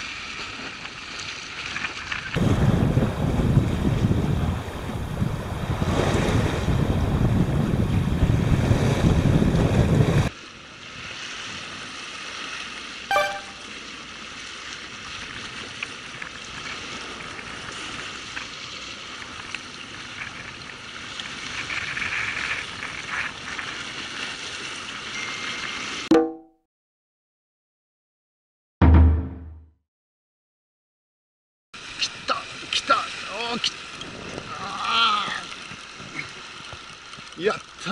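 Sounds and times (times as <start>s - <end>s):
sea waves washing against rocks: 2.3s - 10.4s
wind buffeting microphone: 2.4s - 10.3s.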